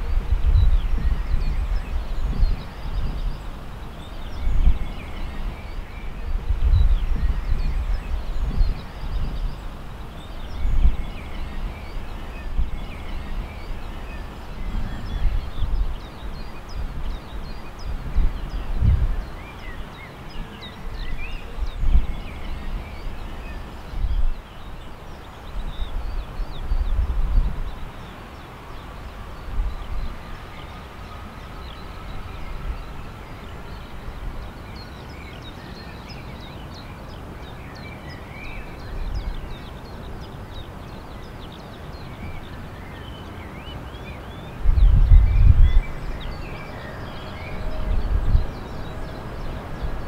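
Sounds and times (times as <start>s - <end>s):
small birds chirping: 0.0s - 50.0s
wind buffeting microphone: 0.0s - 50.0s
distant jet engine whine: 27.0s - 36.0s, 42.2s - 50.0s.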